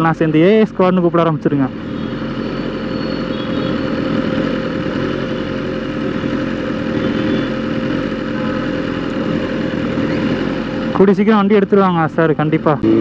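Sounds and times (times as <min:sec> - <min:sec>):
motorcycle engine idling: 0:00.0 - 0:13.0
traffic noise: 0:00.0 - 0:13.0.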